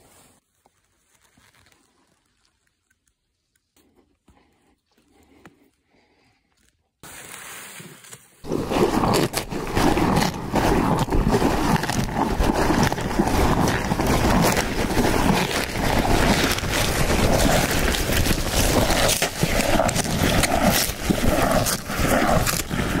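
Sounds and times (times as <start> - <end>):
cow chewing greens: 8.4 - 23.0.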